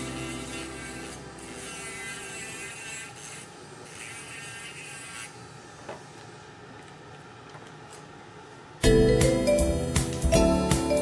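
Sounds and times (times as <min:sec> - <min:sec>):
grinding stone on plaster: 0:00.0 - 0:05.4
dental handpiece whining: 0:00.0 - 0:05.5.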